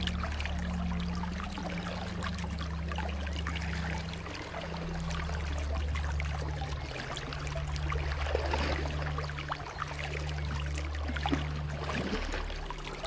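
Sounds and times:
stream water splashing over rocks: 0:00.0 - 0:13.0.

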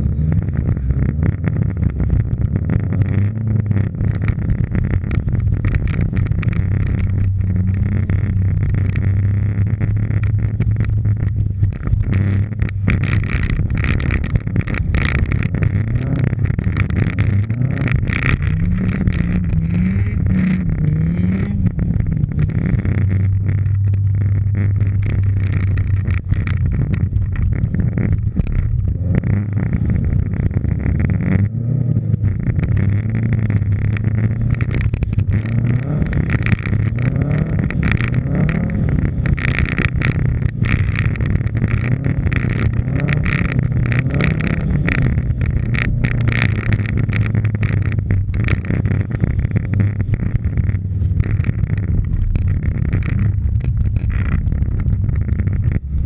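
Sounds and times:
rally car engine revving: 0:00.0 - 0:56.0.

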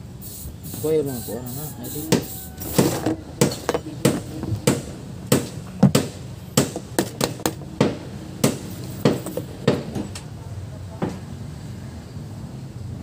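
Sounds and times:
hand tools knocking on metal: 0:02.1 - 0:10.1.

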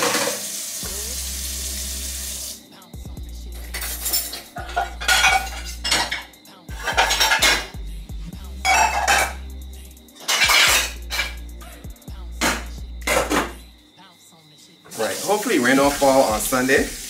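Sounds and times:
pots and dishes clattering: 0:00.0 - 0:00.5, 0:03.7 - 0:07.8, 0:08.6 - 0:09.4, 0:10.2 - 0:11.4, 0:12.4 - 0:13.6
food frying sizzle: 0:00.0 - 0:02.7, 0:14.9 - 0:17.0.

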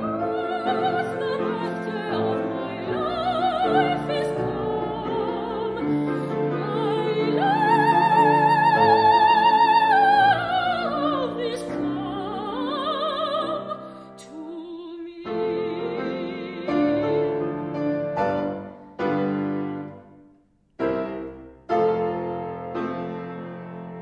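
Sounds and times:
soprano singing with vibrato: 0:00.0 - 0:17.6
grand piano chords: 0:00.0 - 0:24.0.

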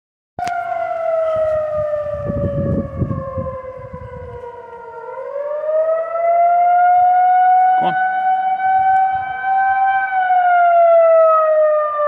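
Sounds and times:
civil defense siren wailing: 0:00.4 - 0:12.0.

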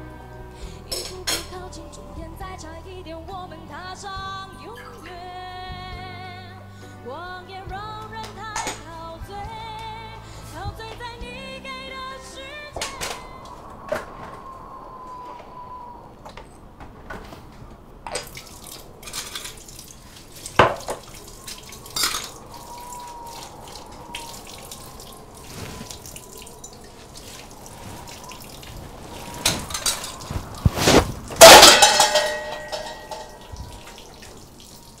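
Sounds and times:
dishes clinking: 0:00.9 - 0:01.6, 0:21.8 - 0:23.0, 0:29.4 - 0:34.1
dripping water: 0:18.0 - 0:35.0
loud ringing clatter: 0:31.4 - 0:33.4.

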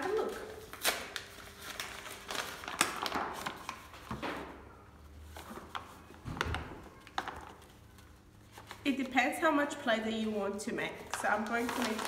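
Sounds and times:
paper bag crinkling: 0:00.0 - 0:04.1, 0:10.8 - 0:12.0.

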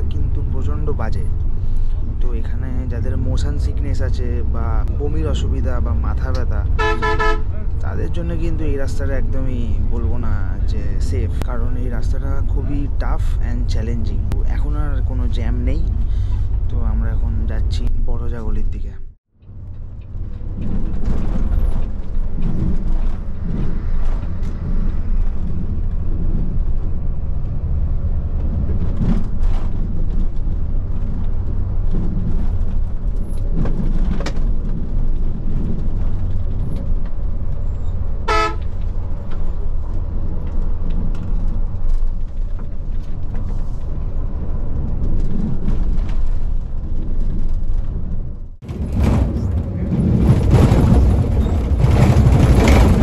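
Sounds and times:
bus engine rumble: 0:00.0 - 0:53.0
vehicle horn toot: 0:06.8 - 0:07.7, 0:38.2 - 0:38.7.

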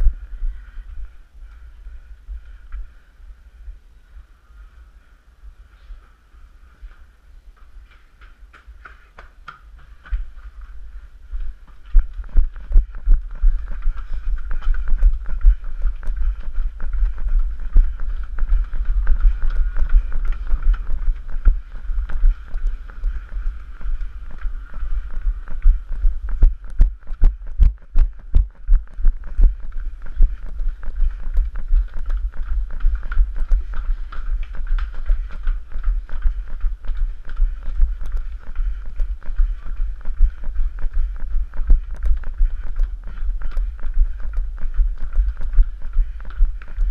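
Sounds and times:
footsteps on stone paving: 0:06.0 - 0:46.9.

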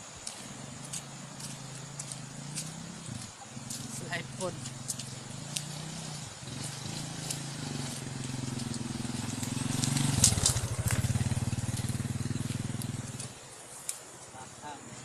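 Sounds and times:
small motorcycle engine passing: 0:00.5 - 0:13.5.

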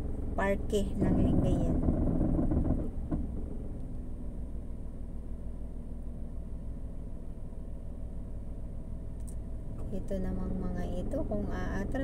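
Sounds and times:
car engine running: 0:00.0 - 0:12.0
faint click: 0:09.2 - 0:09.4.

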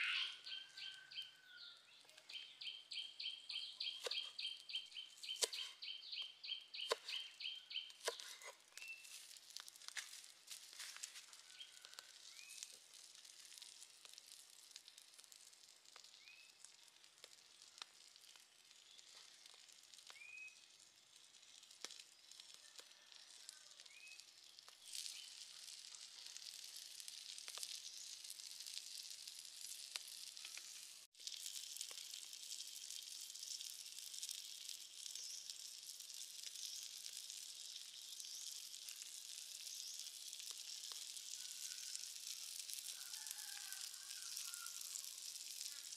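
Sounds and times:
shrimp sizzling on hot stone: 0:00.0 - 0:45.9
small pops: 0:23.9 - 0:25.2.

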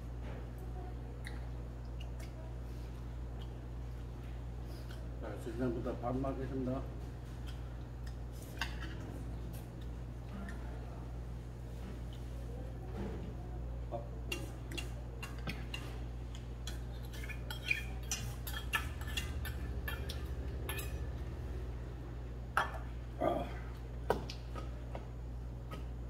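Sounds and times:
utensils clinking on steel bowls: 0:16.6 - 0:21.2.

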